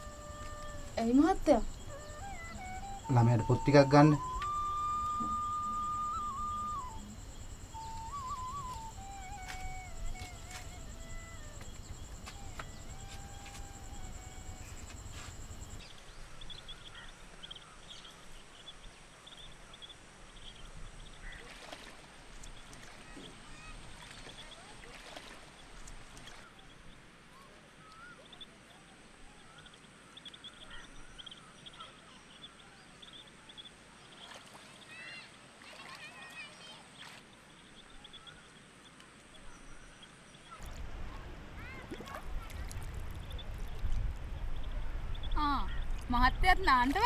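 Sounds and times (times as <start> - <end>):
thin high insect whine: 0.0 - 15.8
light water splashes: 21.2 - 28.1, 34.0 - 39.4, 40.5 - 47.0.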